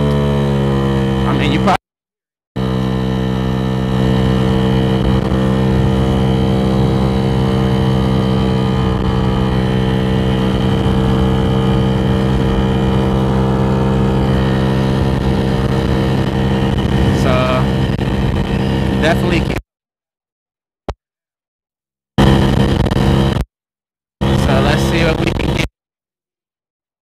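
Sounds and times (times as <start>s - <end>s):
scooter engine pulling hard: 0.0s - 1.8s, 2.6s - 19.6s, 22.2s - 23.4s, 24.2s - 25.6s.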